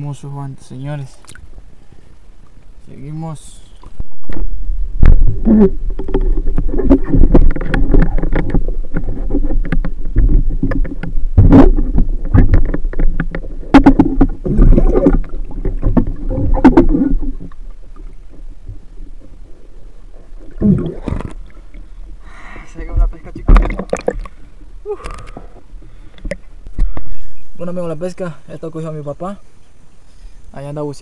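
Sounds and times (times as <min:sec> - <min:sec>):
water splashing: 0:03.7 - 0:27.1
muffled underwater rumbling: 0:03.7 - 0:28.0
dull underwater knocks and clicks: 0:03.8 - 0:19.5, 0:20.2 - 0:22.2, 0:22.8 - 0:27.2.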